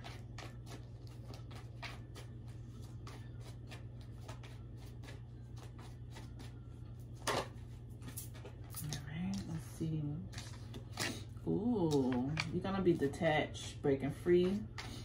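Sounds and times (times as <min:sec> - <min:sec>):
cards being shuffled: 0:00.0 - 0:08.6
low steady hum: 0:00.0 - 0:15.0.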